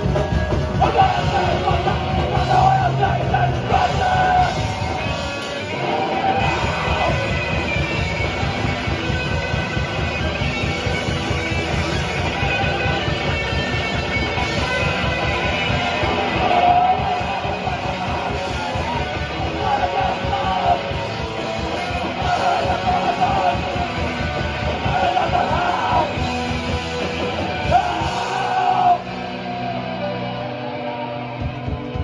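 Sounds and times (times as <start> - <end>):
distorted electric guitars: 0.0 - 32.0
person yelling vocals: 0.8 - 4.6, 27.5 - 29.2.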